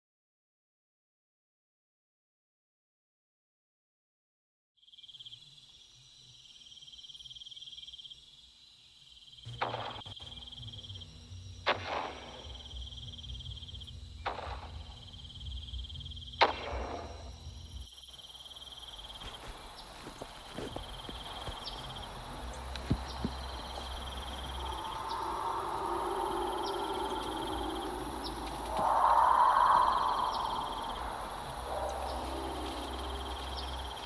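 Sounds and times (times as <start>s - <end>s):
crickets chirping: 4.8s - 34.0s
low rumble: 19.3s - 34.0s.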